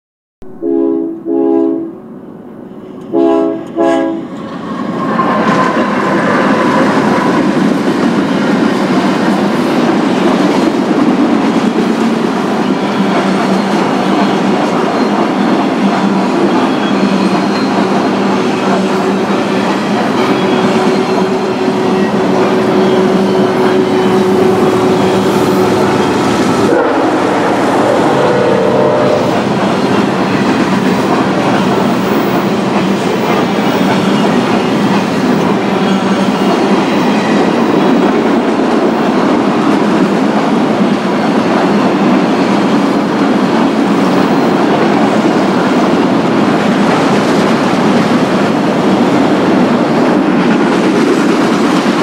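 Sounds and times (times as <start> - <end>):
train air horn blasts: 0.5 - 2.1, 3.1 - 4.3, 20.4 - 29.7
train wheels clattering on rail: 3.0 - 52.0.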